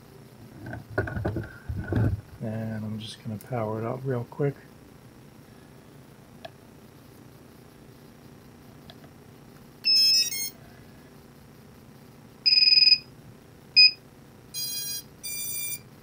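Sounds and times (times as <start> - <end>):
electronic beeps: 12.5 - 13.1, 14.6 - 15.8.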